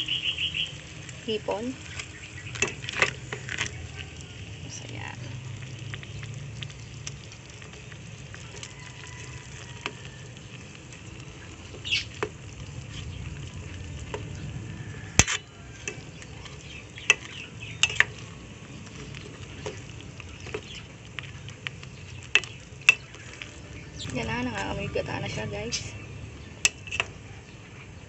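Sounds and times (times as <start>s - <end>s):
low sizzle from pot: 0.0s - 28.0s
metal spoon clinking against pot: 17.0s - 18.2s.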